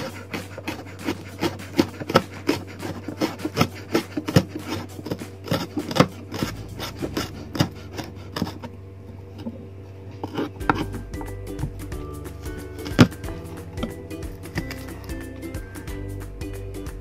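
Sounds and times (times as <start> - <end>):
knife chopping on wooden board: 0.0 - 8.6.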